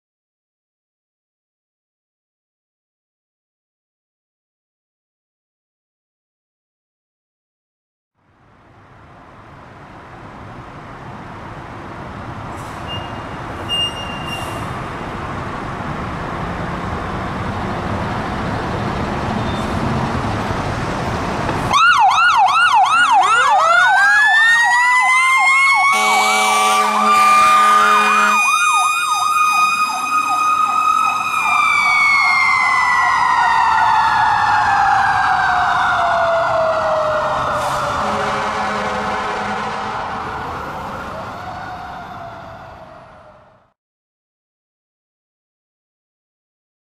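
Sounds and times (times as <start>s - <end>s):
electronic siren yelp: 21.7s - 38.1s
air horn blast: 25.8s - 28.5s, 37.6s - 40.4s.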